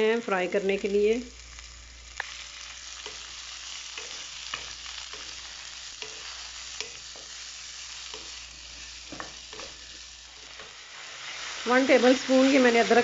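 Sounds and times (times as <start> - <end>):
vegetables sizzling in oil: 0.0 - 13.0
utensil tapping and scraping pan: 3.9 - 7.4, 8.1 - 10.8.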